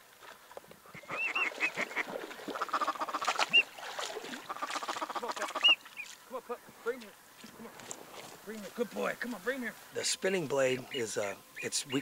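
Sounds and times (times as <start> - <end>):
duck quacking: 1.0 - 3.6, 4.4 - 5.8.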